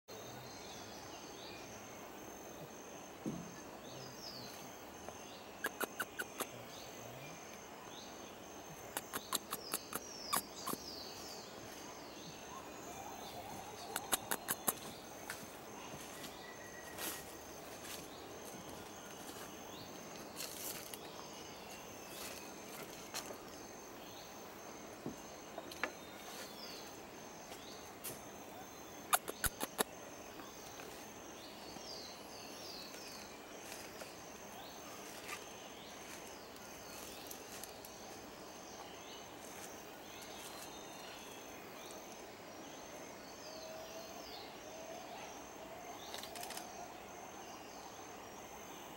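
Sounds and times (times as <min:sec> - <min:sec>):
insect hum: 0:00.1 - 0:48.9
bird chirps: 0:05.5 - 0:06.5, 0:08.8 - 0:15.4, 0:28.8 - 0:33.9
sharp clicks: 0:08.9 - 0:10.8, 0:13.9 - 0:14.8, 0:29.1 - 0:29.9.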